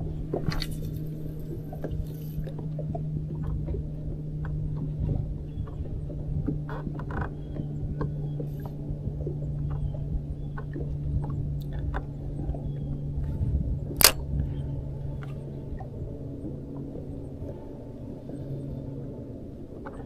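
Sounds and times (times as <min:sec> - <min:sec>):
wind and water rumble: 0:00.0 - 0:20.0
sharp click: 0:14.0 - 0:14.2.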